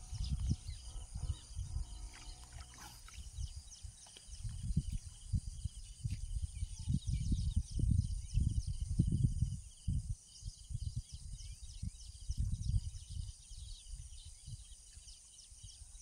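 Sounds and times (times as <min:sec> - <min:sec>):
birds chirping: 0:00.0 - 0:07.3
insect drone: 0:00.0 - 0:16.0
wind buffeting microphone: 0:00.0 - 0:16.0.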